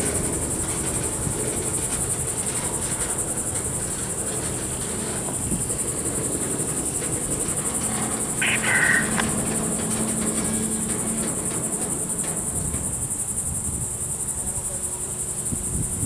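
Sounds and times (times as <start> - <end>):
freight train rolling past: 0.0 - 16.0
pulsing insect chorus: 0.0 - 16.0
high squeal: 3.6 - 13.3.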